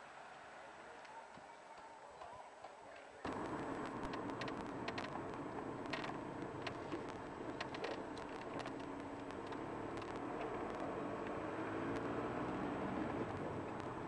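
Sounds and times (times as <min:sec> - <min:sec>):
car engine and road hum: 0:03.2 - 0:14.0
sharp clicks: 0:03.3 - 0:14.0.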